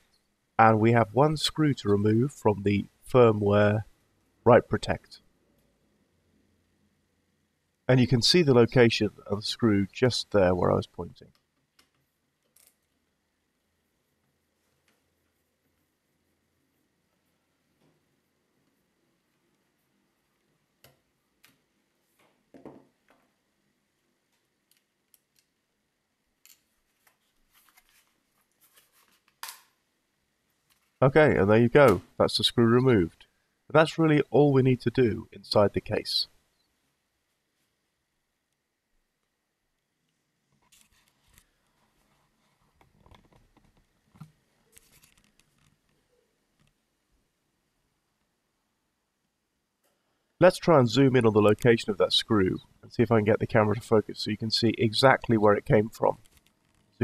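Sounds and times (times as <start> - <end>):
light handling clicks and rustles: 40.6 - 46.8.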